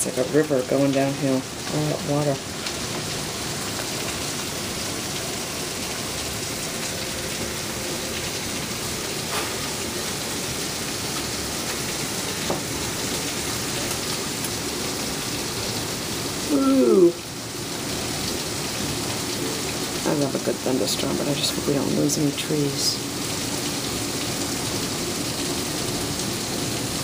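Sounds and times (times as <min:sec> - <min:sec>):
heavy rain pouring: 0:00.0 - 0:27.0
person exclaiming: 0:16.4 - 0:17.2.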